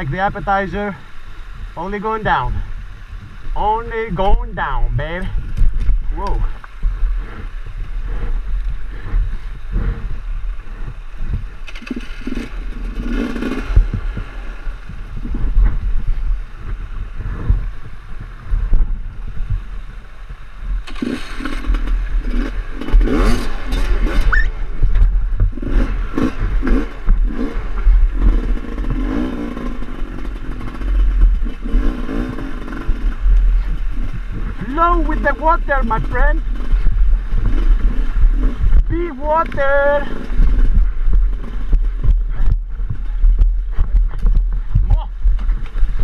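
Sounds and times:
motorcycle engine revving: 0.0 - 46.0
motorcycle scraping on rocks: 5.0 - 16.2, 20.8 - 46.0.

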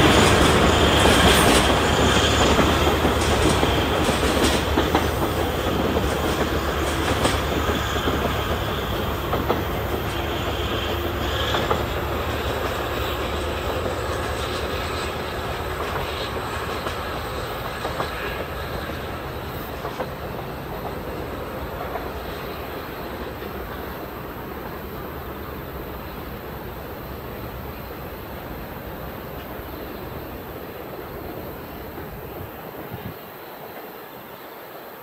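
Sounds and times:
train wheels clacking over rail joints: 0.0 - 34.0.

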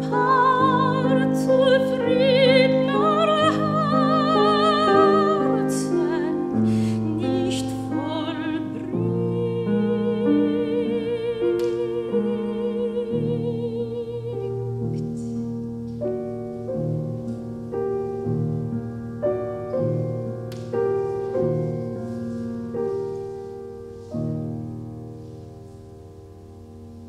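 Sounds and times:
soprano singing with vibrato: 0.0 - 15.2
piano chords: 0.0 - 27.0.

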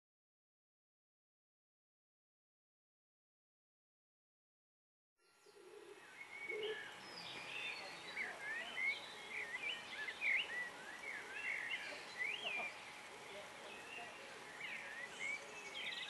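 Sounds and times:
faint outdoor hiss: 5.2 - 16.0
songbirds chirping and warbling: 5.2 - 16.0
dove cooing: 5.5 - 7.0, 8.0 - 15.9.

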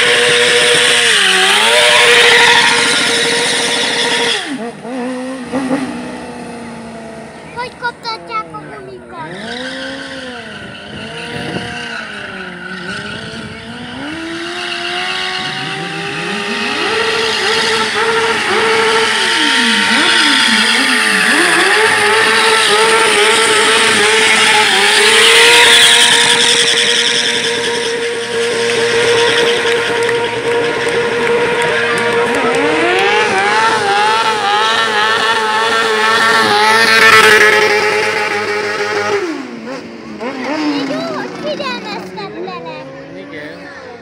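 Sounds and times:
tyres screeching: 0.0 - 4.6
engine revving: 0.0 - 44.0.

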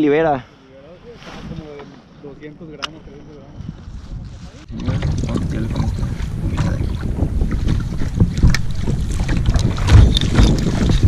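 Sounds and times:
wind buffeting microphone: 2.9 - 11.0
water slapping against kayak hull: 4.7 - 11.0.

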